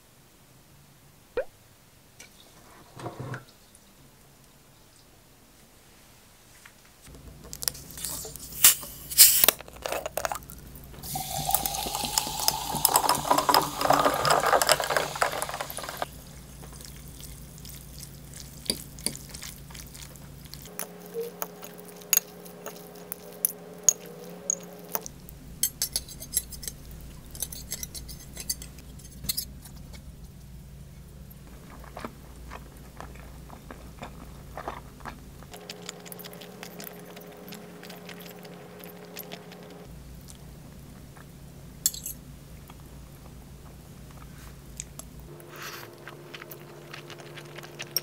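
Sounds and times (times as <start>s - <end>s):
glass and ice clinking: 11.0s - 16.1s
drink pouring into glass: 11.0s - 16.2s.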